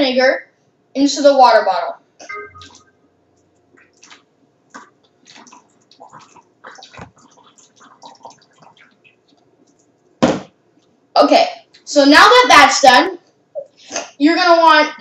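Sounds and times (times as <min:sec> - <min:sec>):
liquid trickling into bottle: 0:04.8 - 0:10.0.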